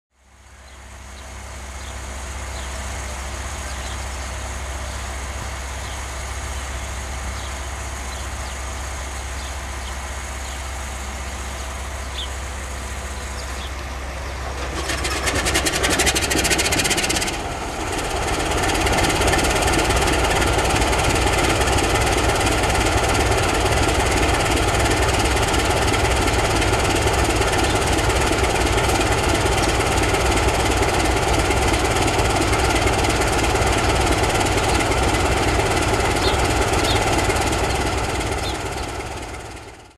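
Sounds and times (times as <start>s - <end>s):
diesel engine idling: 0.2s - 39.9s
steady low hum: 0.2s - 39.9s
engine cranking rattle: 13.2s - 39.8s.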